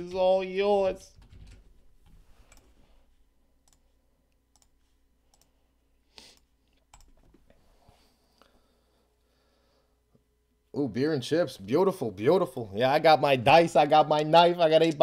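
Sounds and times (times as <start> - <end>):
keyboard and mouse clicks: 1.2 - 2.8, 3.6 - 3.9, 4.5 - 5.6, 6.3 - 7.6.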